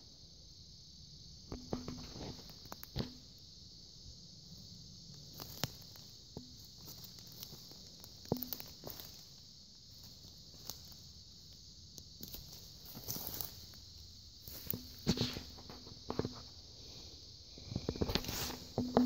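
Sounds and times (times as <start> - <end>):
insect chorus: 0.0 - 19.0
slow footsteps: 17.6 - 19.0.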